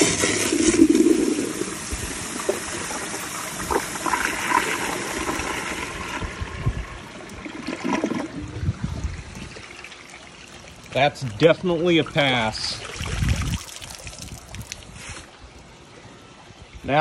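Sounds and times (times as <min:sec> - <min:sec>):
toilet flushing: 0:00.0 - 0:08.6
water trickling: 0:00.0 - 0:15.8.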